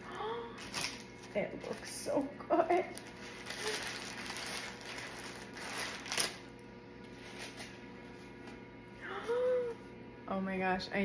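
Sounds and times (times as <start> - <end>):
parchment paper rustling: 0.6 - 8.5.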